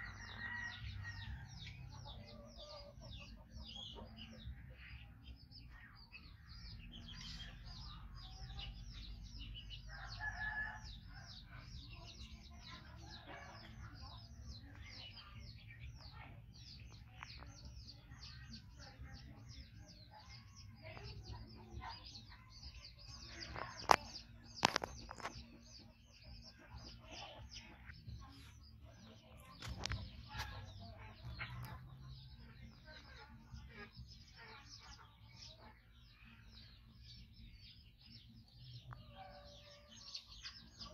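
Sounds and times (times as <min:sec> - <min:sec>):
chickens and small birds chirping: 0:00.0 - 0:40.9.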